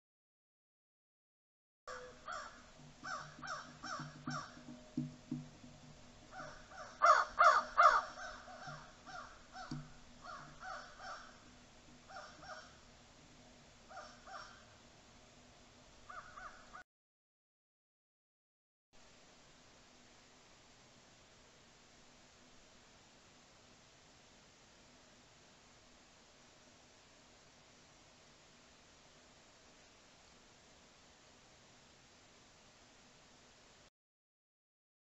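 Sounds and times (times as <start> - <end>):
crows cawing: 1.9 - 4.8, 6.3 - 12.8, 13.9 - 14.7, 16.1 - 16.8.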